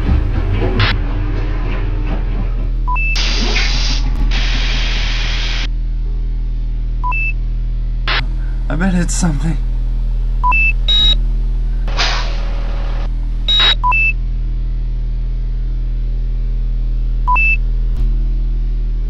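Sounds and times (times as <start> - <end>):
low electrical hum: 0.0 - 19.0
electronic beeps and blips: 2.9 - 3.6, 13.5 - 14.1
burst of hiss: 11.9 - 13.0.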